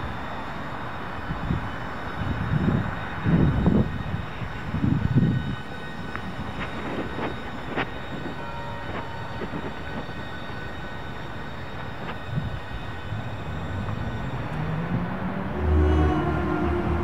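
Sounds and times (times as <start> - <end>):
low outdoor rumble: 15.3 - 17.0.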